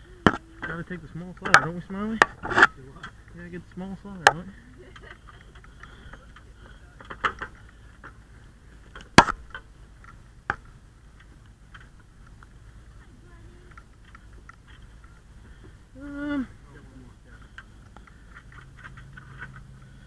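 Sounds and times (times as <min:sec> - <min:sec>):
light ticks and rustle: 0:02.7 - 0:09.0, 0:11.0 - 0:15.8.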